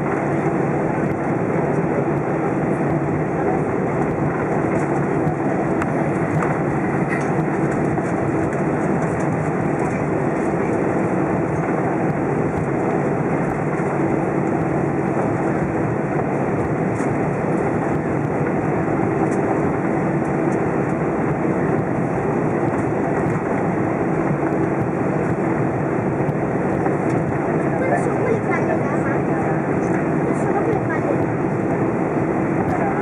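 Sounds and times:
jet engines idling: 0:00.0 - 0:33.0
wheels rumbling on taxiway: 0:00.0 - 0:33.0.

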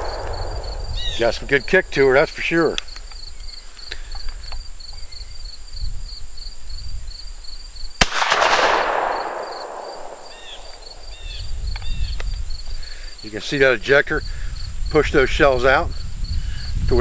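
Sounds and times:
shotgun shot: 0:00.0 - 0:02.0, 0:08.0 - 0:11.1.

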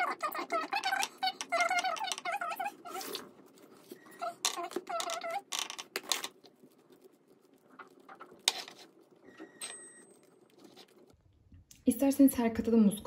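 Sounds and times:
spatula squeaking on glass: 0:00.0 - 0:06.2, 0:07.5 - 0:11.1
spatula wet scraping: 0:00.0 - 0:11.2.

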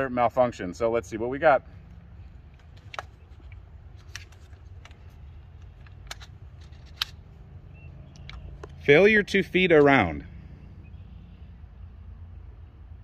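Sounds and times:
rifle clicks and knocks: 0:02.4 - 0:07.4, 0:08.0 - 0:08.8.

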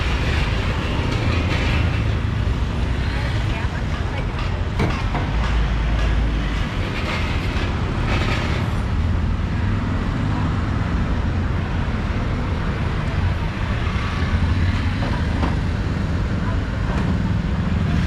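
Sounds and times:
general bustle: 0:00.0 - 0:11.1
rumble of passing vehicles: 0:00.0 - 0:18.0.

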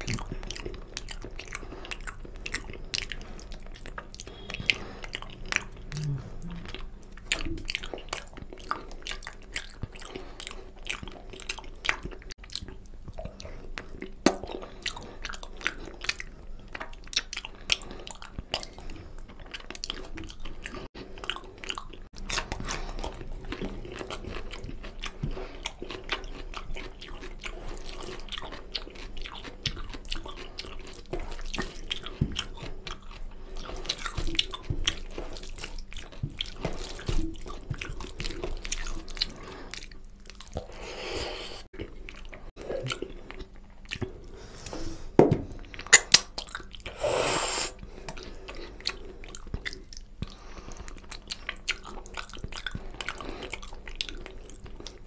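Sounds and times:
wet chewing and smacking: 0:00.0 - 0:40.9, 0:41.6 - 0:44.5, 0:45.4 - 0:47.0, 0:47.8 - 0:55.0.

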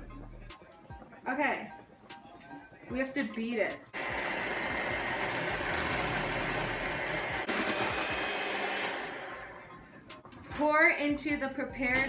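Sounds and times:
electric hand mixer whirring: 0:04.0 - 0:09.7.

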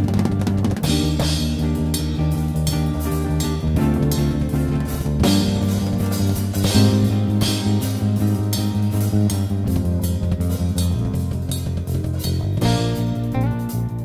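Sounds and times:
drums keeping a steady beat: 0:00.0 - 0:14.0
electric bass: 0:00.0 - 0:14.0
electric keyboard: 0:00.0 - 0:14.0.

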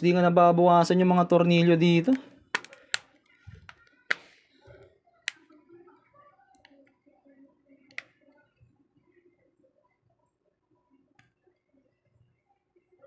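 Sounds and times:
small clicks of phone parts: 0:02.1 - 0:04.3.

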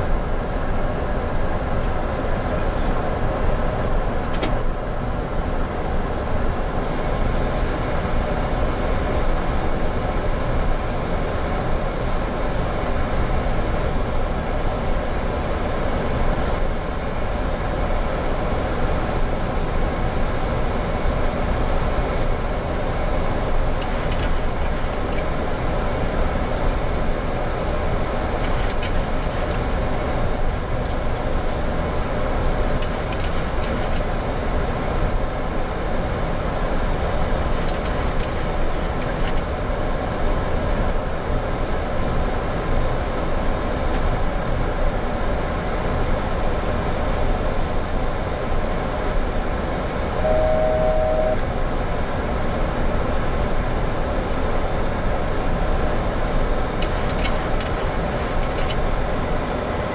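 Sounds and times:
air conditioning noise: 0:00.0 - 0:59.9
steady electronic tone: 0:50.2 - 0:51.5.

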